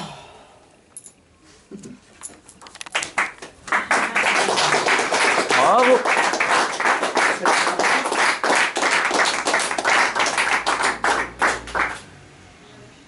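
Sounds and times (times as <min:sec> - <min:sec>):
audience applauding: 0:02.9 - 0:12.0.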